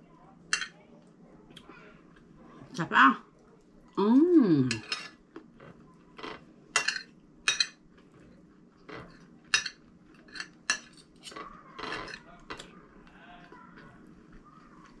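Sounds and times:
cutlery clinking on a plate: 4.7s - 7.8s, 8.9s - 12.7s.

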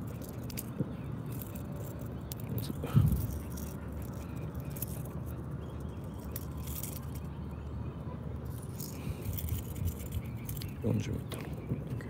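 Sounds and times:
fishing lure hooks jingling: 0.0s - 7.4s, 8.4s - 10.8s
low background rumble: 0.0s - 12.0s.

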